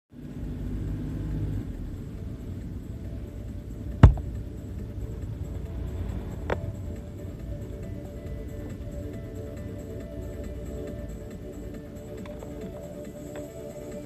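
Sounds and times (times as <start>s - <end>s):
car engine and tyre rumble: 0.1s - 14.0s
sharp knock: 4.0s - 4.3s.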